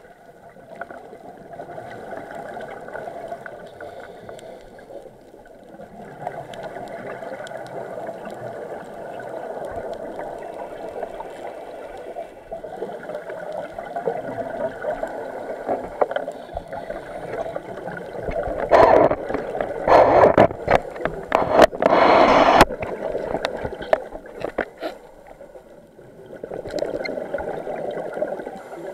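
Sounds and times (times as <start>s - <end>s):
underwater regulator rushing: 14.3s - 25.1s.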